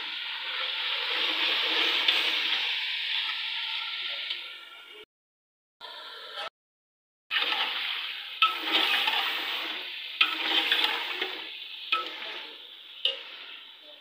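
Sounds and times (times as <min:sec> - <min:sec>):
scraping strokes in a pan: 0:00.0 - 0:04.2, 0:07.4 - 0:14.0
food sizzling in a hot pan: 0:00.0 - 0:05.0, 0:07.4 - 0:14.0.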